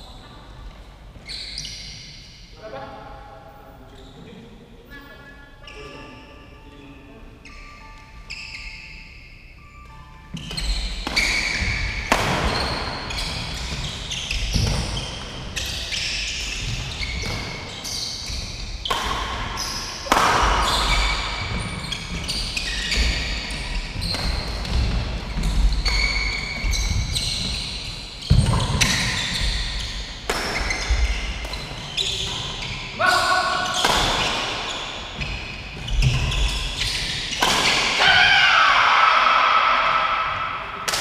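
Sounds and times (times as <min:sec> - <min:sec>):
shoes squeaking on court: 0:00.0 - 0:02.4, 0:04.9 - 0:38.0
racket hitting shuttlecock: 0:10.4 - 0:15.4, 0:18.8 - 0:22.2, 0:24.0 - 0:27.5, 0:30.2 - 0:32.5, 0:33.6 - 0:35.4, 0:36.0 - 0:38.2.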